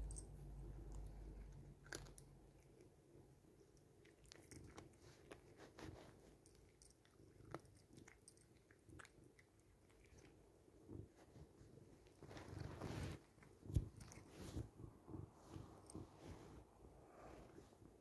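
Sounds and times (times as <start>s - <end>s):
cat crunching dry treats: 0.8s - 2.9s, 4.0s - 5.6s, 6.5s - 10.4s.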